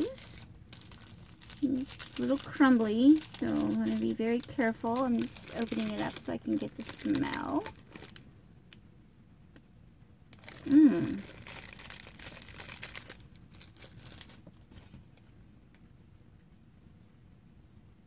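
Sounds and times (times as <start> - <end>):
wrapper rustling and crackling: 0.0 - 8.3, 10.3 - 15.0
person humming: 10.6 - 11.3.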